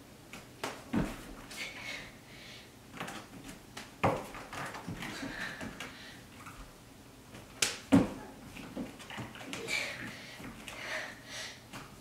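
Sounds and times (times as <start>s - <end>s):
hands slapping thighs: 7.6s - 8.1s.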